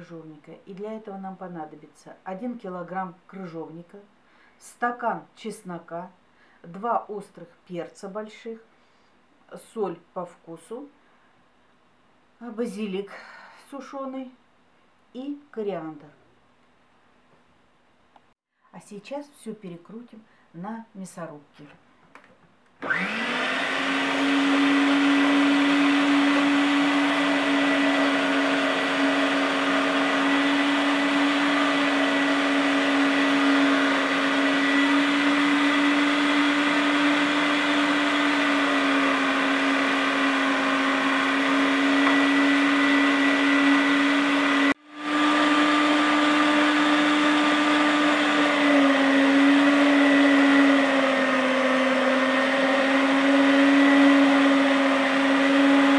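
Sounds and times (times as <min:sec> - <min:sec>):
meat grinder motor humming: 0:22.8 - 0:55.9.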